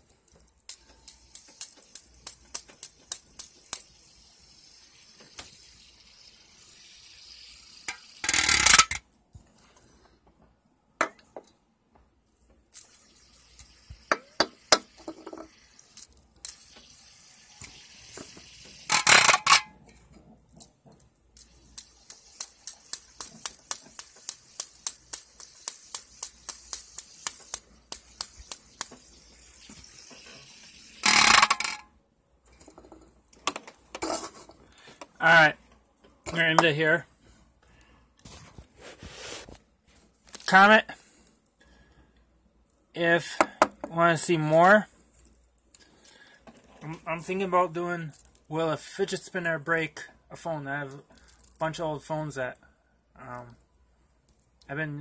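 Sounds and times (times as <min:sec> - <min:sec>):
fidget spinner ticking on can: 0:00.2 - 0:08.9, 0:21.3 - 0:31.8.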